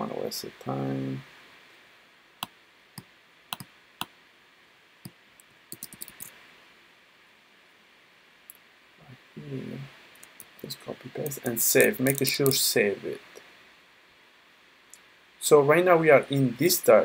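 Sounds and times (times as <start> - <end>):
keyboard and mouse clicks: 3.5 - 4.1, 5.4 - 6.3, 11.2 - 12.6.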